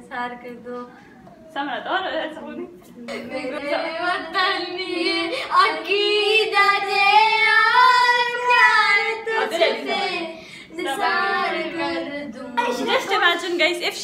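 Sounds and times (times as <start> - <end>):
person singing unaccompanied: 3.0 - 13.2.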